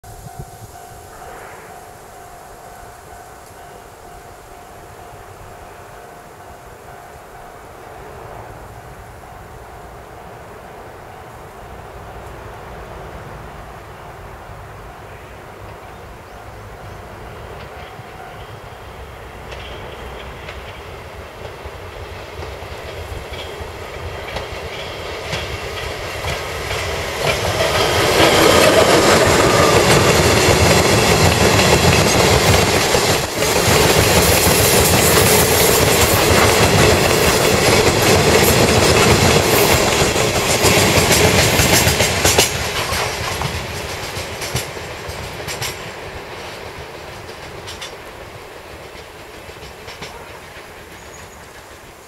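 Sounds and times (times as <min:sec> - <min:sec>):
freight train passing: 0:00.0 - 0:52.0
wheels clattering over rail joints: 0:15.6 - 0:52.0.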